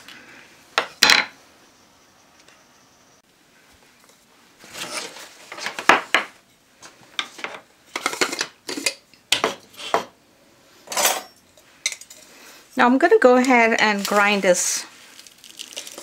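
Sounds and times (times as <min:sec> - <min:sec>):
kitchen items clinking: 0:07.2 - 0:10.1, 0:13.1 - 0:14.8.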